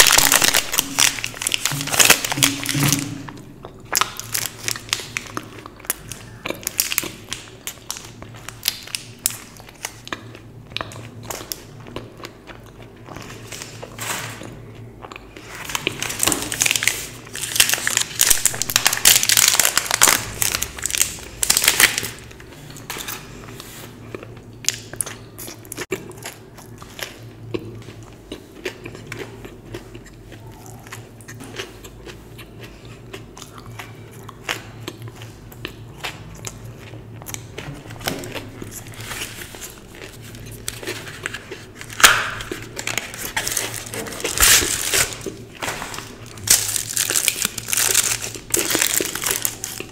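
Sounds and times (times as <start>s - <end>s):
wrapper crinkling and tearing: 0.0s - 10.1s, 15.4s - 23.2s, 37.3s - 49.9s
chewing and biting chocolate: 14.5s - 45.5s, 46.1s - 49.9s.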